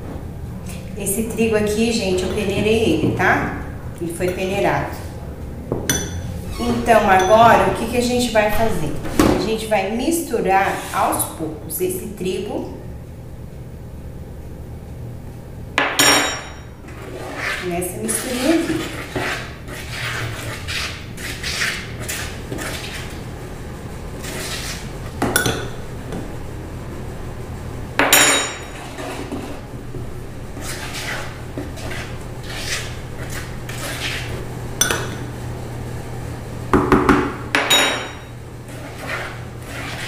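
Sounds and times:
utensil scraping plastic bowl: 16.9s - 23.3s, 24.2s - 24.9s, 30.6s - 34.4s, 38.7s - 40.0s.

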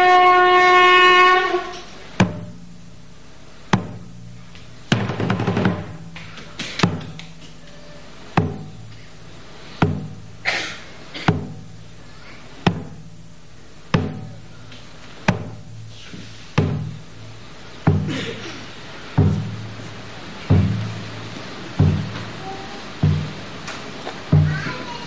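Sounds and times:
drum struck slowly: 0.0s - 25.0s.

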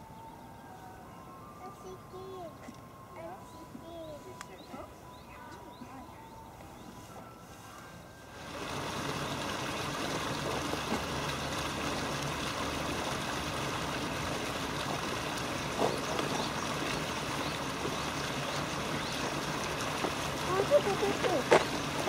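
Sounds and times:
river water rushing: 8.3s - 22.0s.

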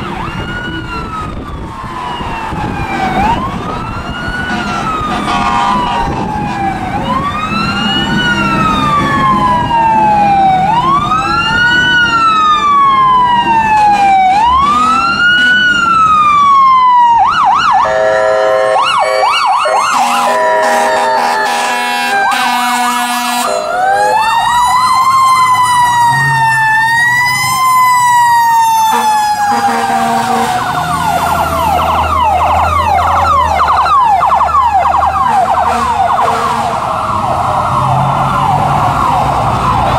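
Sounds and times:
ambulance siren wailing and yelping: 0.0s - 39.9s
second siren yelping: 0.0s - 39.9s
vehicle horn blasts: 4.5s - 6.1s, 17.9s - 19.2s, 19.9s - 24.1s, 28.9s - 30.5s, 35.3s - 36.7s.

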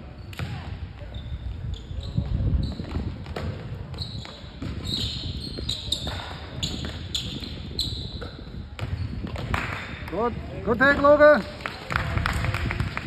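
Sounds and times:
sneakers squeaking on court: 0.0s - 9.6s
basketball bouncing on hardwood floor: 8.8s - 9.6s.

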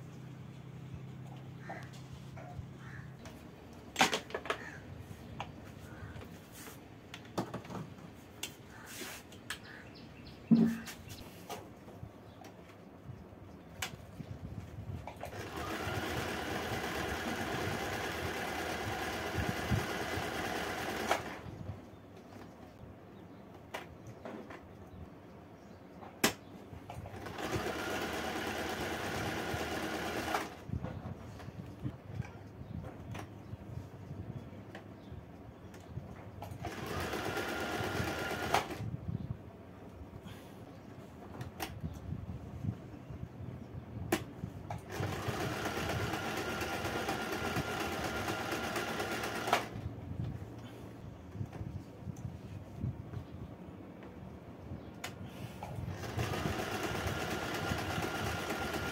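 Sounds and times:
sewing machine stitching: 15.3s - 21.4s, 27.1s - 30.6s, 36.6s - 38.8s, 44.8s - 49.8s, 55.9s - 58.9s.

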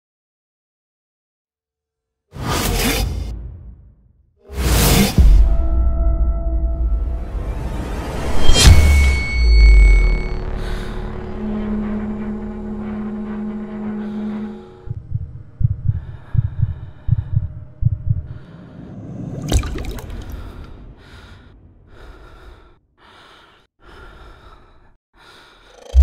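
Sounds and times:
low thumps: 14.8s - 18.6s
water drop splashing in sink: 19.5s - 20.4s.

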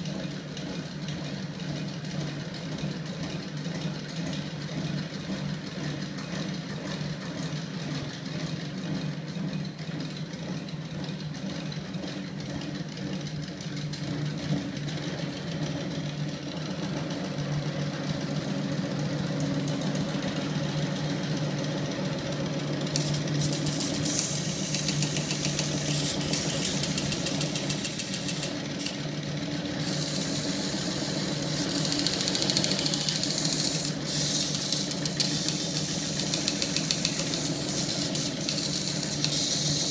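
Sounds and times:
mechanical hum of motor and flywheel: 0.0s - 39.9s
high hissing scraping noise: 29.9s - 32.2s, 33.0s - 39.9s.

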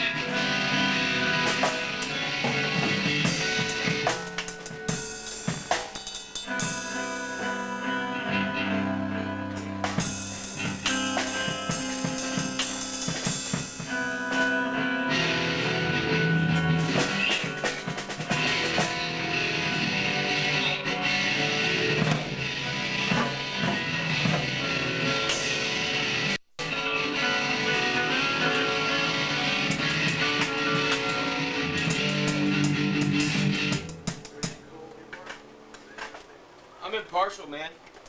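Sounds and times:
drum and cymbal hits: 0.0s - 8.0s, 9.6s - 14.6s, 15.3s - 20.5s, 21.1s - 26.7s, 28.5s - 34.7s
electric guitar chords: 0.0s - 35.7s.

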